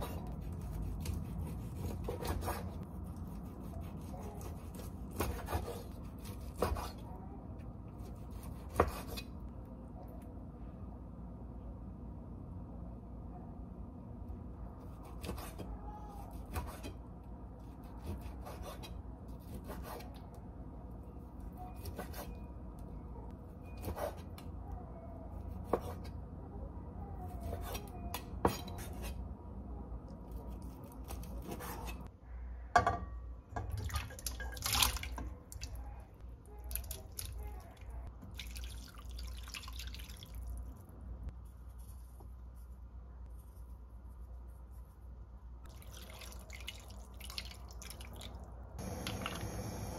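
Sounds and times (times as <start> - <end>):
water dripping and trickling: 38.3 - 40.8, 45.7 - 48.5.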